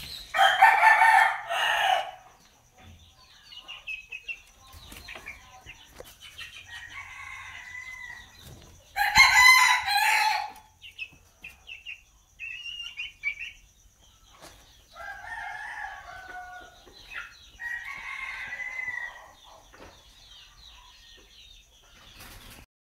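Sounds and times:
chickens clucking: 0.0 - 22.6
roosters crowing: 0.1 - 2.3, 6.6 - 10.8, 14.8 - 19.4.

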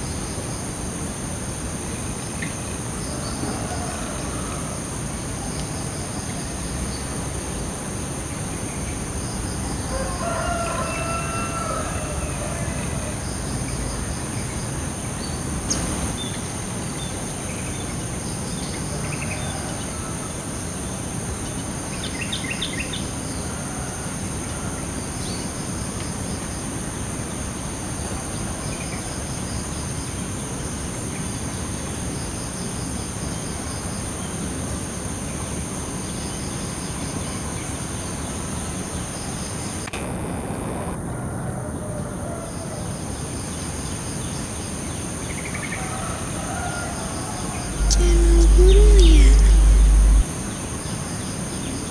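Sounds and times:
rooster crowing: 3.3 - 4.9, 9.8 - 13.1, 45.8 - 50.2
noisy rumble: 47.7 - 50.3
thin high tones: 47.8 - 50.2.

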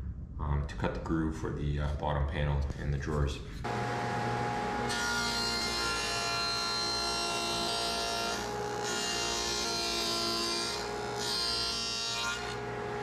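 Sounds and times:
table saw motor whine: 3.7 - 13.0.

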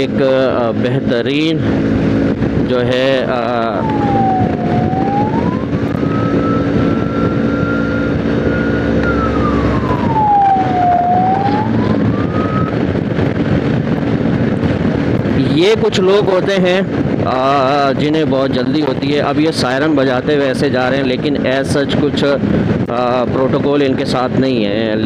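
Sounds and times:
vehicle siren wailing: 2.2 - 13.2.

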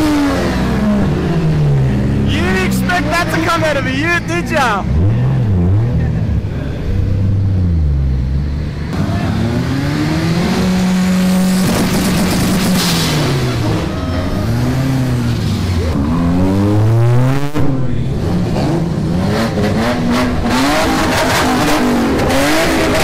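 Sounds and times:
car engines revving: 0.0 - 23.0
exhaust pops crackling: 11.5 - 13.6.

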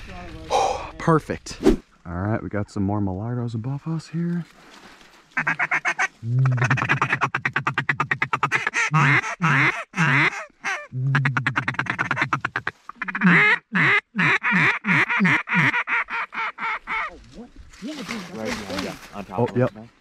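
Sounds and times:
duck call chatter and quacks: 5.4 - 17.2.

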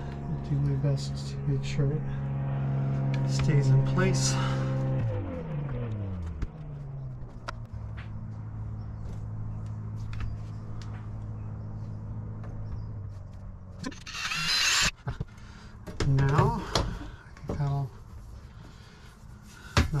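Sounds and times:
steady low hum: 0.0 - 20.0
cordless drill drilling metal: 13.8 - 14.9.

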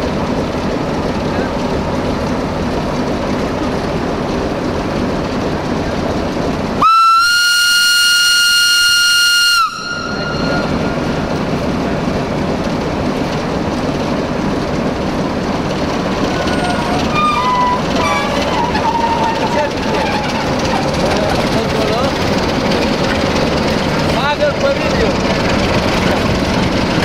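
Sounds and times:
locomotive whistle: 6.8 - 11.1, 16.3 - 20.8.

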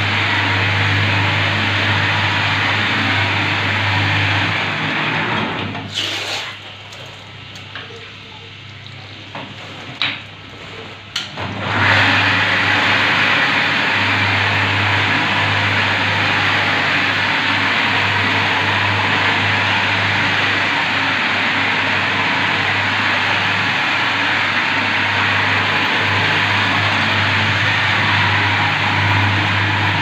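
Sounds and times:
motor hum: 6.6 - 30.0
polishing pad grinding on tile: 11.7 - 30.0.

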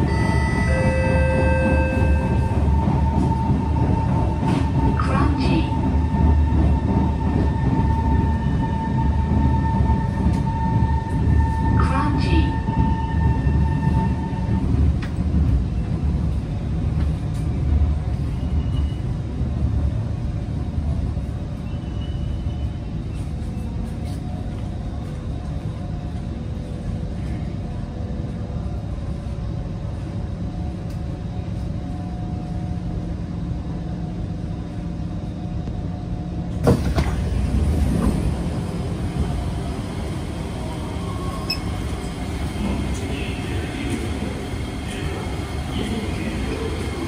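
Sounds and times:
station noise: 0.0 - 14.8, 37.2 - 47.0
train equipment humming: 0.0 - 47.0
train doors opening thump: 36.6 - 37.3.

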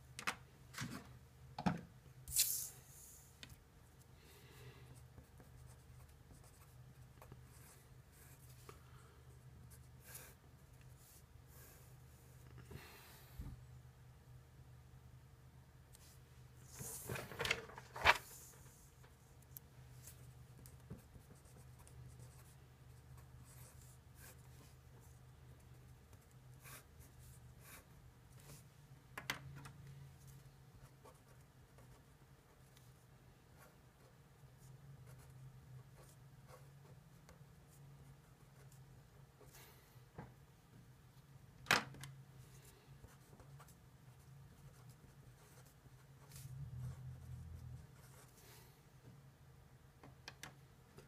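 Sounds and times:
pen scratching on paper: 5.2 - 8.5, 9.8 - 10.4, 48.0 - 48.4
paper handling: 16.7 - 18.6.

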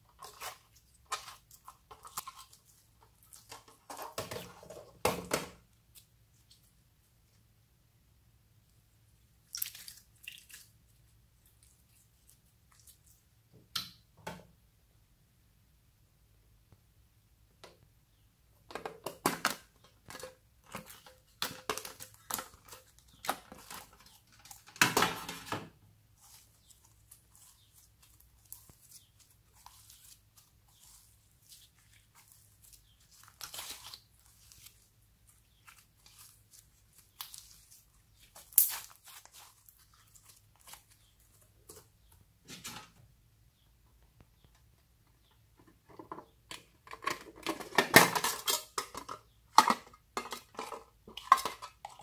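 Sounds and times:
slime crackling and popping: 26.2 - 41.1.

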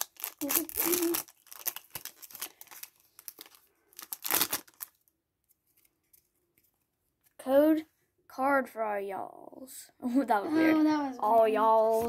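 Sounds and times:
foil wrapper crinkling: 0.0 - 5.1.

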